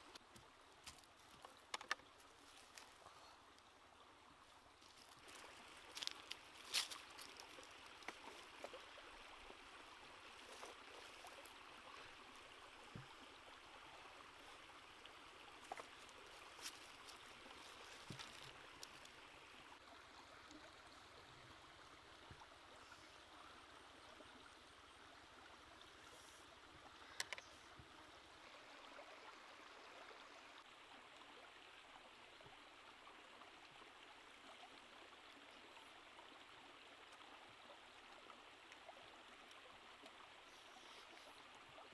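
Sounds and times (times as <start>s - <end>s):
shallow stream running: 0.0s - 41.9s
small clicks and taps: 1.4s - 2.1s, 27.2s - 27.5s.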